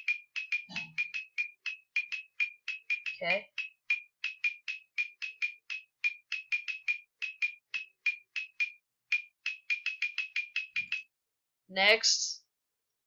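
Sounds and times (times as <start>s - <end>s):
rapid computer dings: 0.0s - 11.0s.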